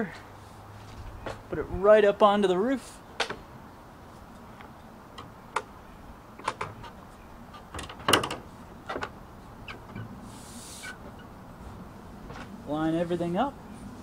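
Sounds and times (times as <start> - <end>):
roof rail clicking and knocking: 6.4 - 10.1.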